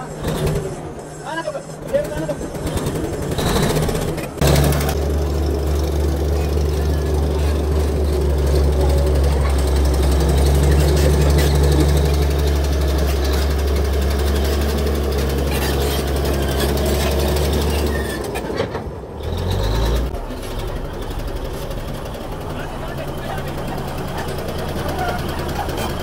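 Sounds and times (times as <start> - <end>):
bulldozer diesel engine running: 0.0 - 26.0.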